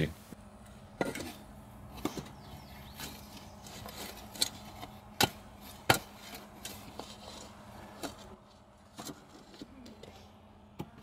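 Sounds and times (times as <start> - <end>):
shovel striking stony soil: 3.0 - 9.9.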